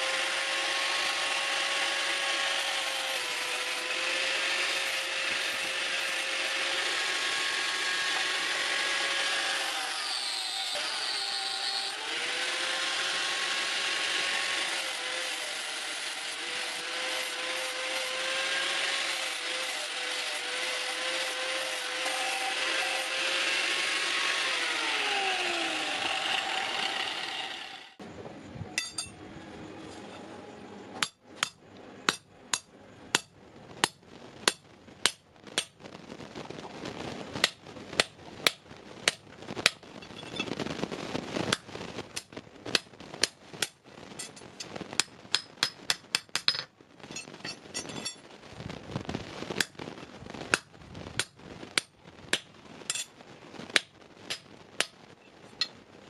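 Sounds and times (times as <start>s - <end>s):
angle grinder running: 0.0s - 28.0s.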